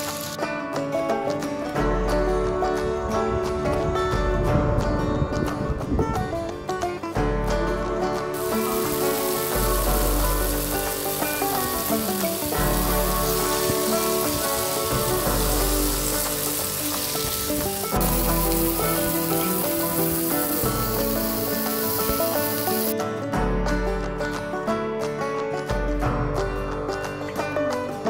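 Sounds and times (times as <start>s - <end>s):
mushrooms sizzling in a pan: 0.0s - 0.4s, 8.4s - 22.9s
background music with bass: 0.0s - 28.0s.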